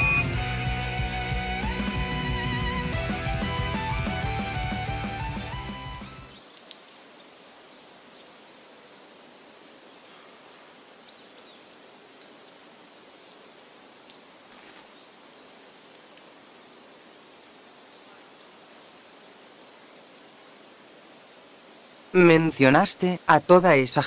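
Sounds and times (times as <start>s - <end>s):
high bird chirps: 0.0s - 0.6s
steady forest hiss: 0.0s - 24.0s.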